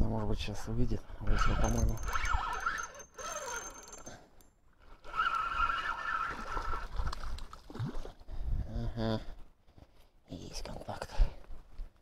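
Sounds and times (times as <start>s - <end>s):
fishing reel gears whirring: 1.3s - 4.2s, 5.1s - 6.2s.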